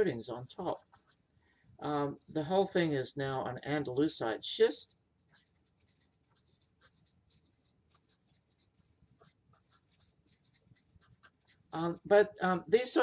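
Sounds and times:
marker writing on paper: 0.7s - 1.2s, 5.3s - 11.7s.

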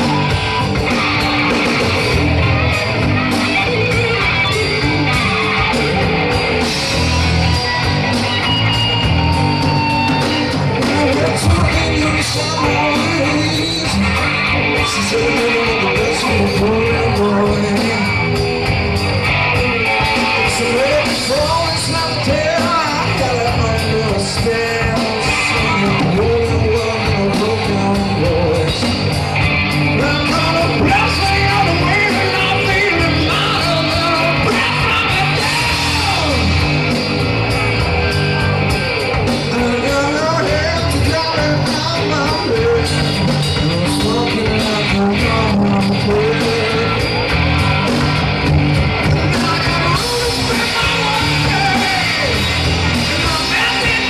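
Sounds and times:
drums: 0.0s - 54.0s
electric guitar: 0.0s - 54.0s
male singer: 9.2s - 18.5s, 19.9s - 29.3s, 29.9s - 36.7s, 39.4s - 47.3s, 49.2s - 54.0s.

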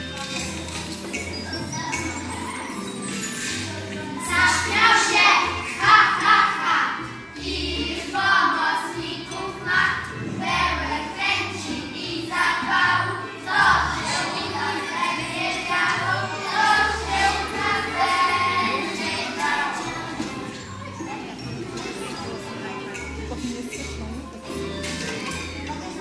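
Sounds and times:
children singing: 0.9s - 23.1s.

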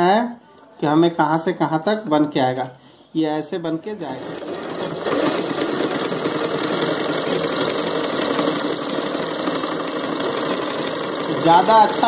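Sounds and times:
sewing machine running: 4.0s - 12.0s.

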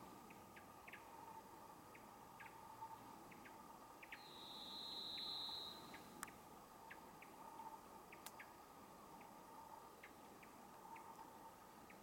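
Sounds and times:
bird whistling long note: 4.2s - 5.8s.

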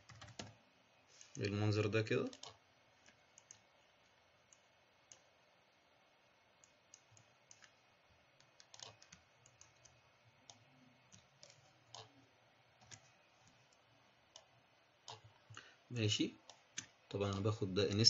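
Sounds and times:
computer mouse and keyboard clicks: 2.2s - 3.7s, 4.5s - 5.3s, 6.6s - 7.8s, 8.4s - 12.2s, 12.8s - 14.5s, 15.1s - 15.6s.

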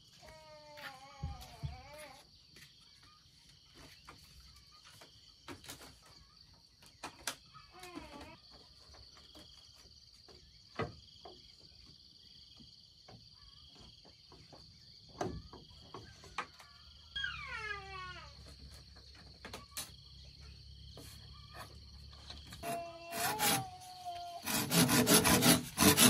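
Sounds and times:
wavering animal call: 17.1s - 18.1s.

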